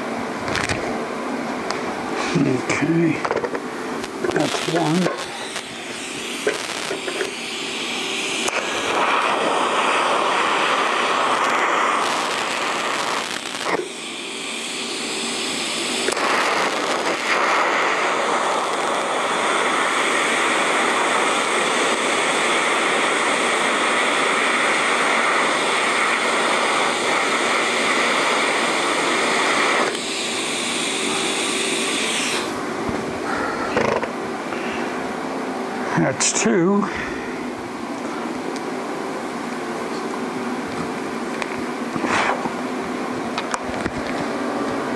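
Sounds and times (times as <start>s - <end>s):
electric welding arc: 3.3s - 32.6s.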